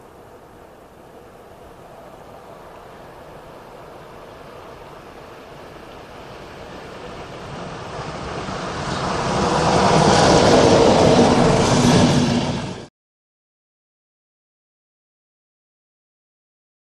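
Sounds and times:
train passing at speed: 0.0s - 12.9s.

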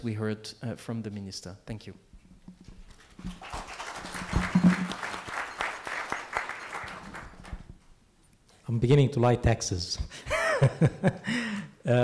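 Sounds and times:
applause: 3.0s - 7.7s.

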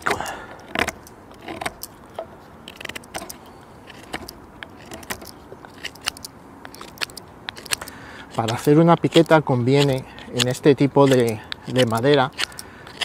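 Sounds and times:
knife shaving wood: 0.0s - 1.9s, 2.6s - 13.0s.

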